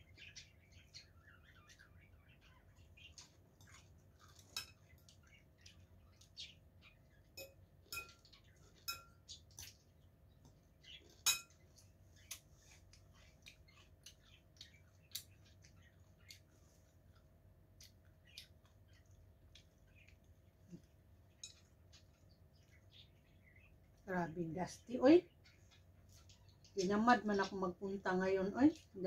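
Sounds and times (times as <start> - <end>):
spoon clinking on ceramic bowl: 7.4 - 9.2.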